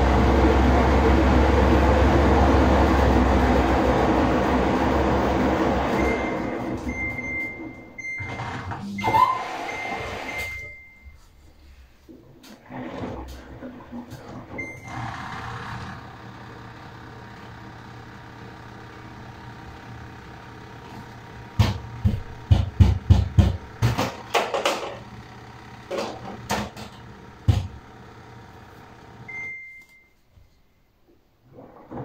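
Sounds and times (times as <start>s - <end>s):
washing machine motor hum: 0.0s - 30.0s
control panel beep: 6.0s - 8.4s, 9.7s - 11.2s, 29.3s - 30.2s.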